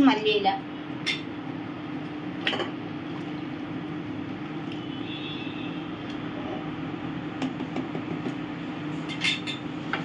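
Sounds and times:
low hum with hiss: 0.0 - 10.0
wooden spoon knocking pot: 7.4 - 8.4.

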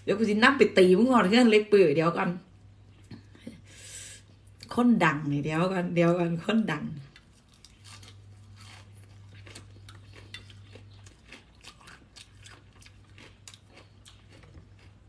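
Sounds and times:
low steady hum: 0.0 - 15.0
chewing crisp leafy greens: 7.0 - 15.0.

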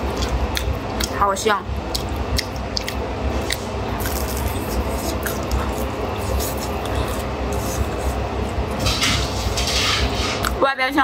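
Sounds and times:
wet mouth sounds: 0.0 - 1.2, 1.8 - 8.6
crunching flatbread: 1.9 - 10.5.

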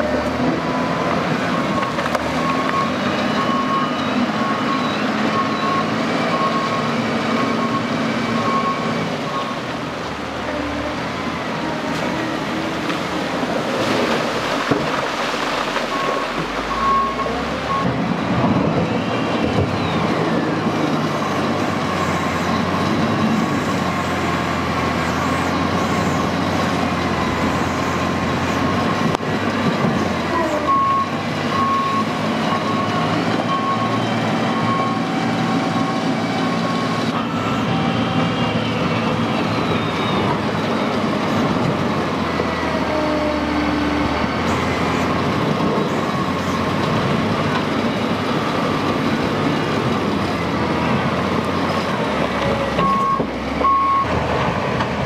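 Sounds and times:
diesel engine revving: 0.0 - 55.0
reversing alarm beeps: 1.5 - 9.6, 15.8 - 18.0, 30.6 - 40.3, 52.8 - 54.1.

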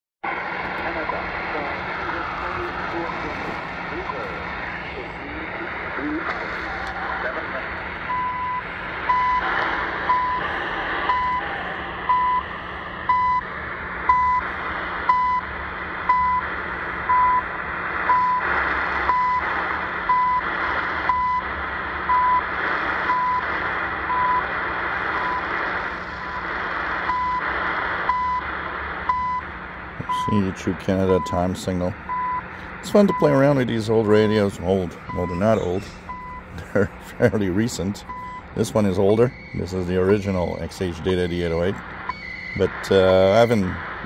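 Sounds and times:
shortwave static: 0.2 - 44.0
short radio beeps: 8.1 - 12.5, 23.1 - 23.4, 29.1 - 43.7.

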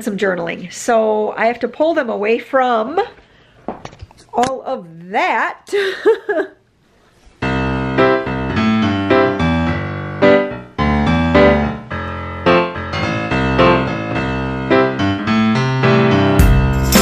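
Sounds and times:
piano music: 7.4 - 17.0.

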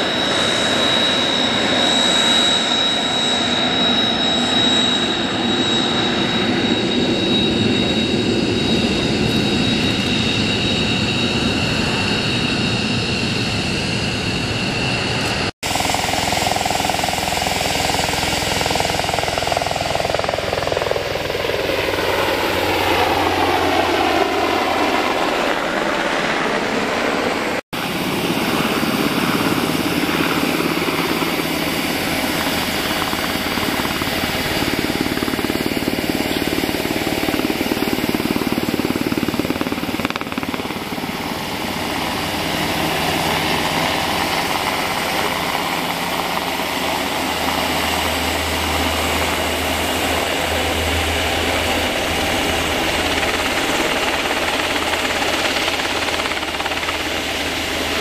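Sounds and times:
helicopter rotor chopping roar: 0.0 - 58.0.

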